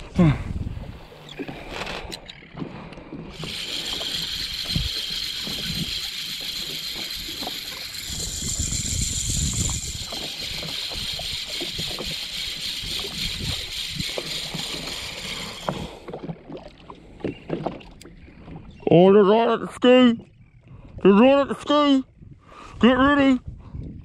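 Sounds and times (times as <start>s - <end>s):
jet ski engine running: 0.0s - 16.2s
water slapping the hull: 0.7s - 19.2s.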